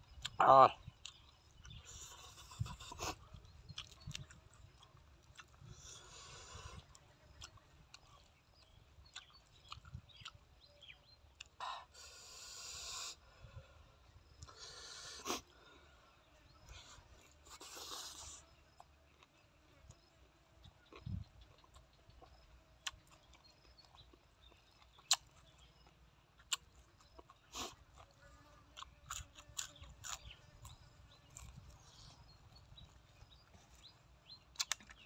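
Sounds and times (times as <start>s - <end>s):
chewing and mouth noises: 0.1s - 10.5s, 16.6s - 35.0s.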